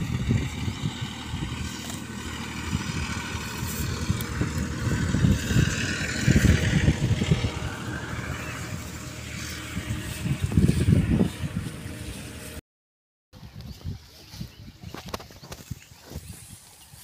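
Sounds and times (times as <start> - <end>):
wind buffeting microphone: 0.0 - 12.6, 13.4 - 17.0.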